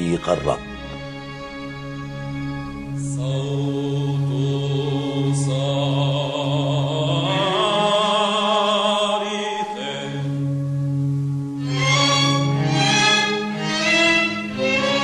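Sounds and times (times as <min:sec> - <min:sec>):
held low drone note: 0:00.0 - 0:07.9
mixed choir chanting: 0:03.0 - 0:10.4.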